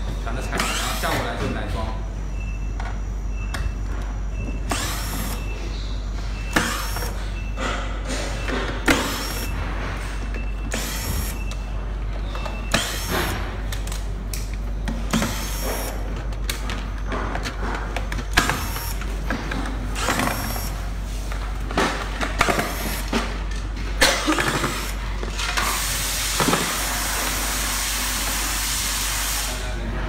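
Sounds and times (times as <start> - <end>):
power screwdriver: 4.7 - 5.4, 6.6 - 7.1, 10.7 - 11.4, 12.7 - 13.4, 15.2 - 15.9, 18.4 - 19.0, 20.0 - 20.7.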